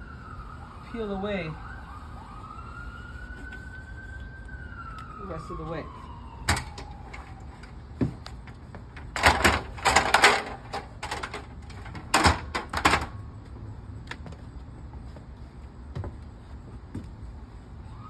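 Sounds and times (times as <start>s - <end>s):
siren: 0.0s - 8.4s, 17.7s - 18.0s
metal ladder clanking and rattling: 8.9s - 13.2s.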